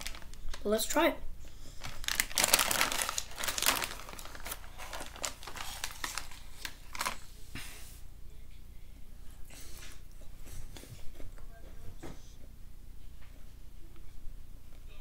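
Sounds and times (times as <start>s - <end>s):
plastic snack bag crinkling: 0.0s - 0.9s, 1.6s - 7.3s.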